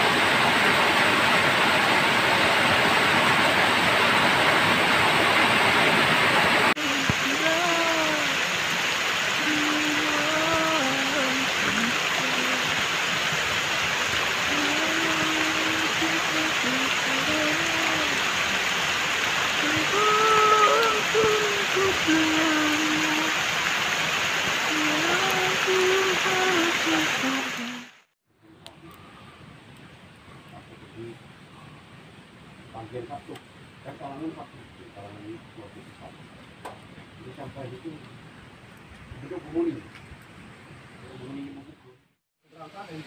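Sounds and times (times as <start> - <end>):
water gushing from a pipe: 0.0 - 27.6
water rushing over rocks: 0.0 - 28.0
heavy rain: 0.0 - 28.1
voice holding wavering notes: 6.8 - 8.4, 9.4 - 12.7, 14.5 - 18.2, 19.6 - 23.3, 24.7 - 27.8.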